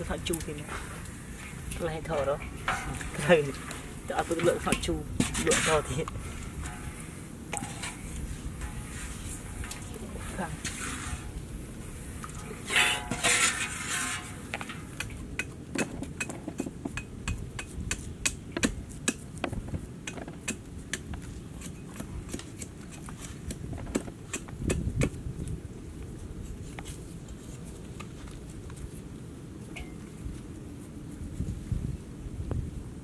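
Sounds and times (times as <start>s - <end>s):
metal clatter: 12.6s - 15.1s.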